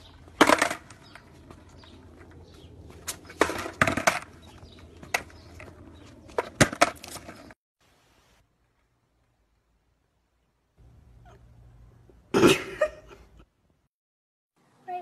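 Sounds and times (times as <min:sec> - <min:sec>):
skateboard clattering on concrete: 0:00.1 - 0:02.3, 0:03.0 - 0:07.6.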